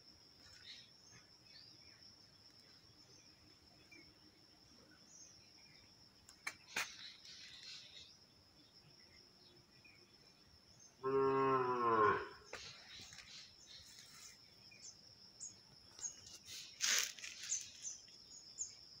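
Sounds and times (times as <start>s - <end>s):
low drawn-out animal call: 11.0s - 12.5s.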